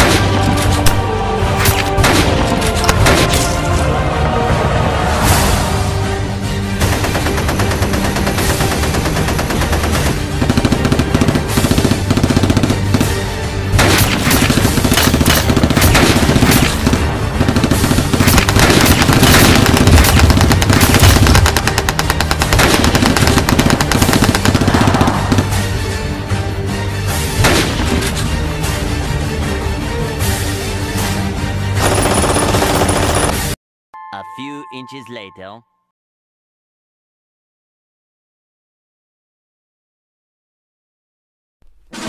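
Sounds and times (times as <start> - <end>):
background music: 0.0 - 35.8
machine-gun and rifle fire: 6.8 - 13.1, 13.8 - 25.6, 31.8 - 33.6.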